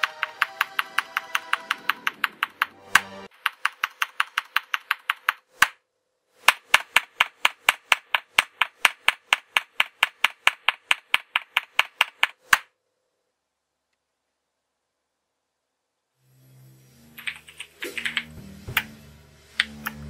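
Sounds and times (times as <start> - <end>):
keyboard keys clicking: 0.0 - 5.4.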